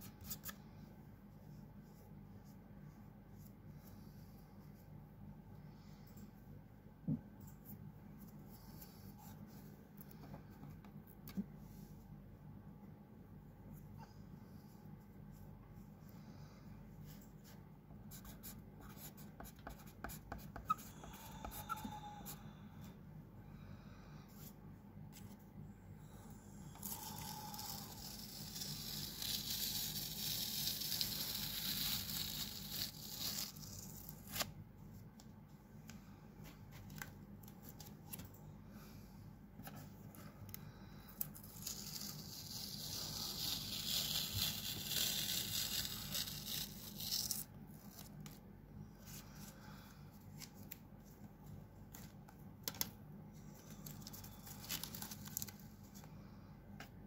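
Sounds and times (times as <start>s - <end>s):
masking tape peeling off paper: 26.8s - 34.5s, 41.3s - 48.1s.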